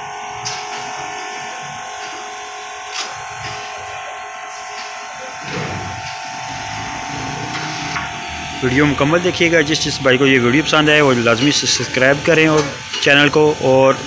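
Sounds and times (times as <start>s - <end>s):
small electric motor whining: 0.0s - 10.2s.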